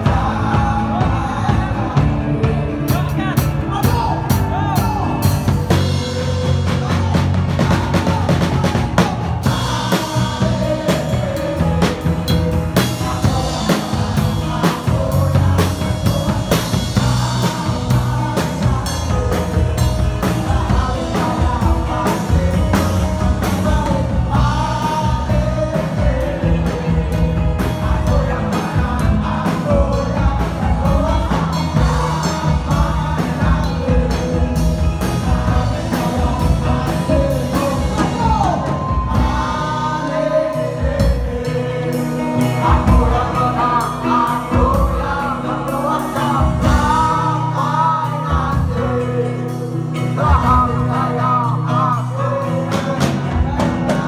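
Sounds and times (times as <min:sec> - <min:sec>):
drum kit beat: 0:00.0 - 0:54.0
person singing: 0:00.0 - 0:54.0.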